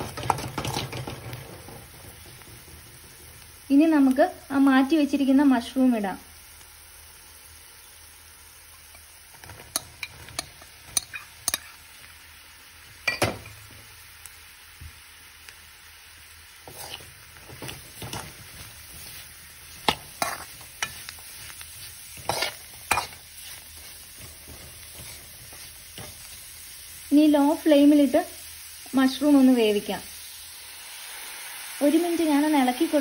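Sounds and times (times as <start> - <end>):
metal spoon scraping a pan: 0.0 - 2.6, 9.3 - 11.9, 16.6 - 26.6
mushrooms sizzling in a pan: 0.0 - 33.0.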